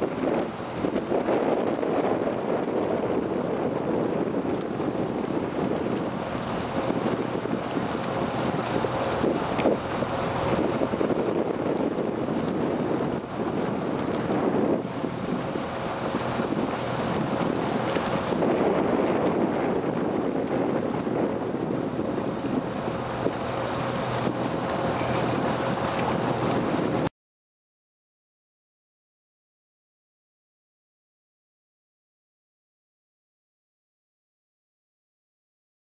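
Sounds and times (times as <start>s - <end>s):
rushing water: 0.0s - 27.1s
wind buffeting microphone: 0.0s - 27.1s.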